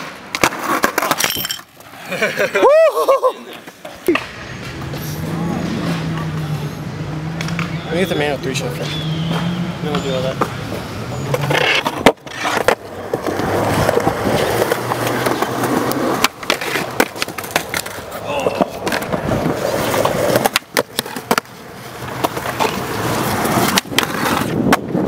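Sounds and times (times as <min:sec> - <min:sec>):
skateboard trucks grinding on concrete: 0:00.0 - 0:25.0
skateboard wheels rolling on concrete: 0:00.0 - 0:25.0
skateboard clacking on landing: 0:11.3 - 0:21.5.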